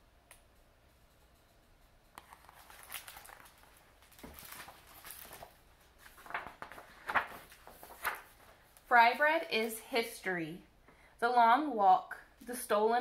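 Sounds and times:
book pages rustling and tapping: 2.1s - 8.9s.

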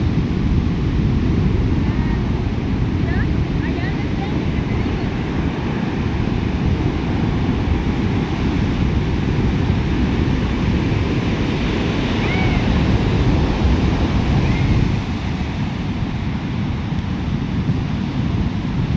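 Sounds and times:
ocean surf breaking: 0.0s - 18.9s.

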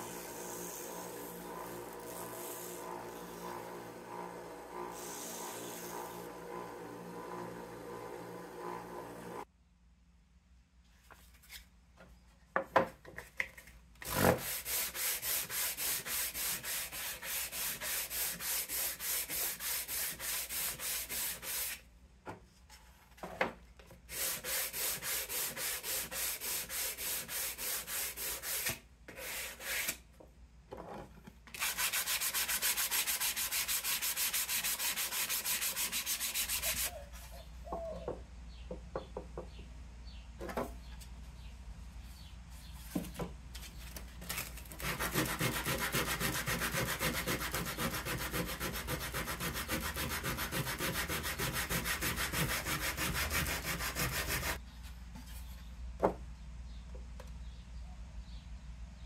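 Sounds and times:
sandpaper scraping wood: 0.0s - 9.4s, 14.1s - 21.8s, 24.1s - 30.0s, 31.6s - 36.9s, 44.3s - 54.6s.

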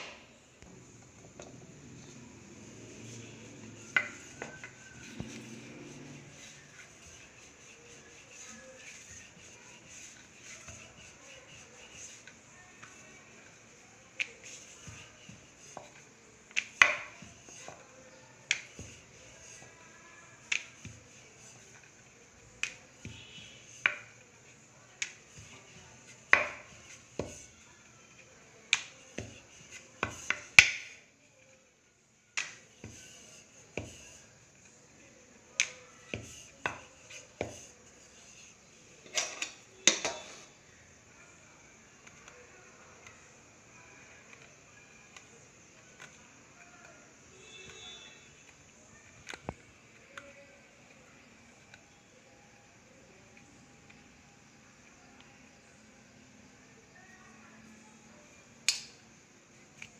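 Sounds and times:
rolling pin clacking on board: 14.2s - 17.8s, 18.4s - 19.7s, 20.4s - 21.8s, 22.6s - 24.3s, 25.0s - 27.6s, 28.7s - 31.0s, 32.4s - 34.2s, 35.6s - 38.5s.

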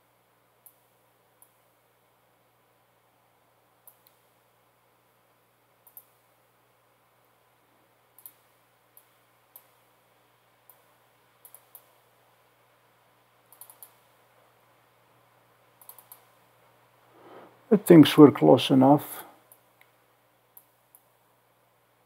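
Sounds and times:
computer mouse clicks: 0.6s - 1.6s, 3.8s - 4.4s, 5.8s - 6.3s, 8.1s - 9.8s, 10.6s - 12.0s, 13.5s - 14.1s, 15.8s - 16.4s, 19.5s - 21.1s.

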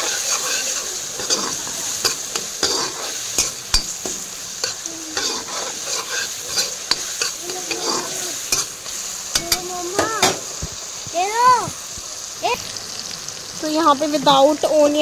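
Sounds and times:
metal spatula scraping pan: 0.0s - 10.5s
tomatoes sizzling in oil: 0.0s - 15.0s.

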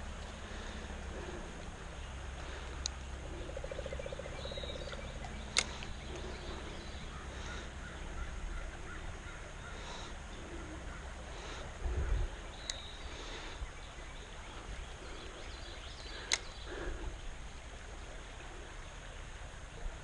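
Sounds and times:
sharp click: 16.3s - 16.5s.

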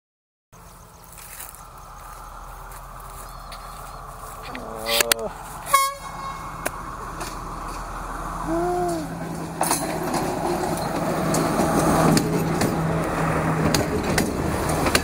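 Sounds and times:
train engine hum: 0.6s - 15.0s
train wheels clacking on rails: 9.0s - 15.0s.

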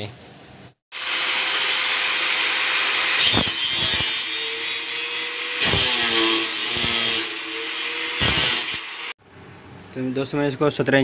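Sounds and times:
angle grinder cutting steel: 0.9s - 9.2s.

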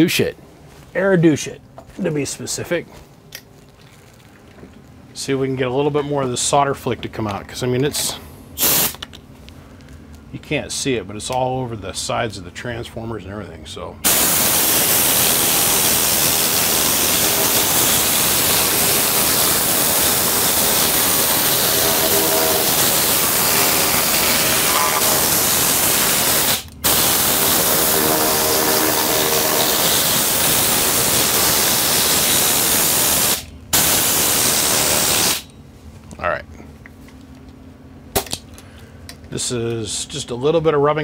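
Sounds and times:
compressed air spray hissing: 8.6s - 9.0s, 14.1s - 35.4s.

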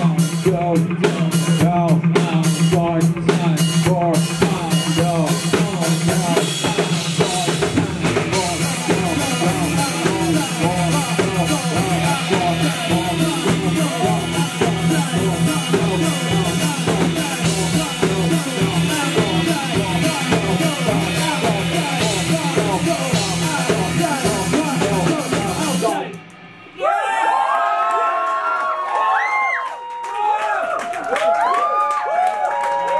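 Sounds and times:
drum kit beat: 0.0s - 26.8s
electric guitars and bass: 0.0s - 27.5s
person singing into microphone: 8.3s - 26.2s.

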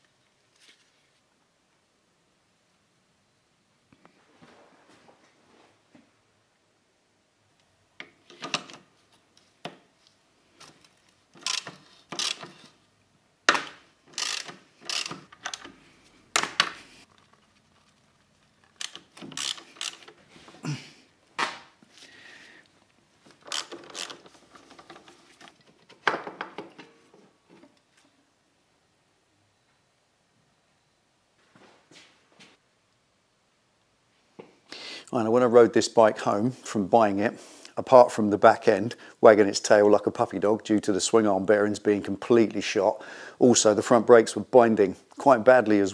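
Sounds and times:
hand tools clicking and knocking: 10.6s - 12.8s, 13.5s - 16.8s, 18.7s - 20.6s, 23.3s - 27.8s.

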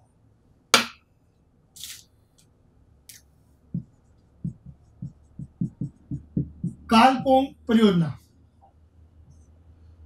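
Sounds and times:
marker tapping board: 0.8s - 1.0s.

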